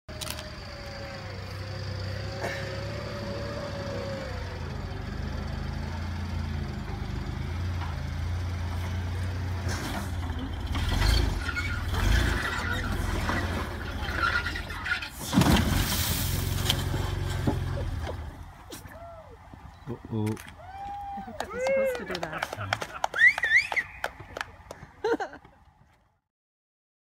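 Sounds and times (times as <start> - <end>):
off-road vehicle engine at low revs: 0.1 - 26.0.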